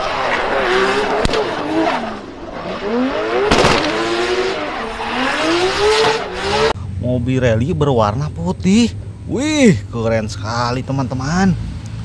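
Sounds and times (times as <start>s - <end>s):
race car engine revving: 0.0s - 6.8s.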